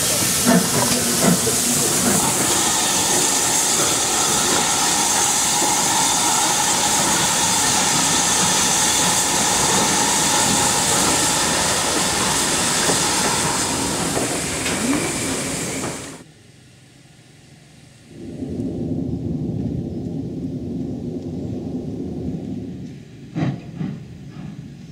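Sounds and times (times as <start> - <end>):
steam hissing: 0.0 - 16.2
train rolling: 0.0 - 16.3, 22.9 - 24.9.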